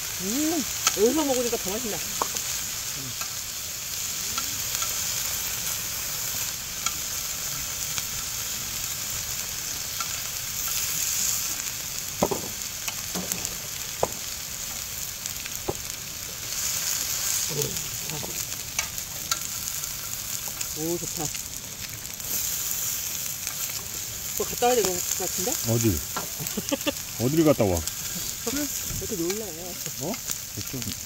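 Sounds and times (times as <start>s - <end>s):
meat sizzling on griddle: 0.0s - 31.0s.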